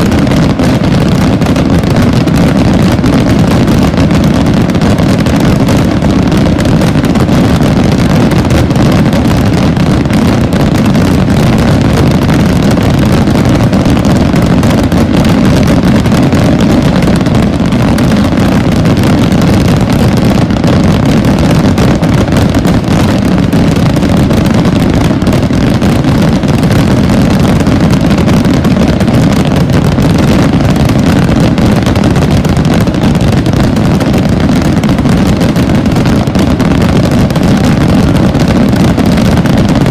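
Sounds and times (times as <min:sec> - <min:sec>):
fireworks bursting in continuous rumble: 0:00.0 - 0:39.9
fireworks crackling: 0:00.0 - 0:39.9.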